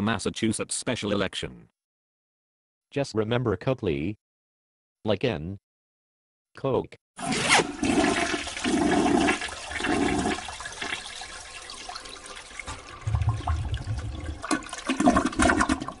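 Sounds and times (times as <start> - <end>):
water rushing and gurgling: 8.0 - 16.0.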